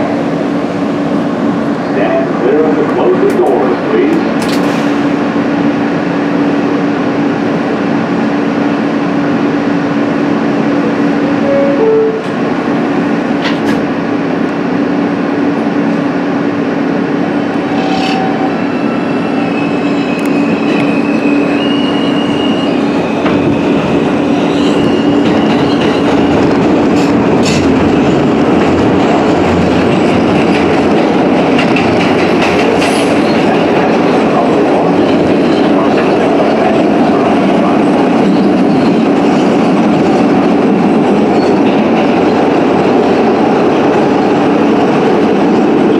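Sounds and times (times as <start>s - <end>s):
subway car hum: 0.0s - 45.9s
train propulsion whines: 10.6s - 13.8s.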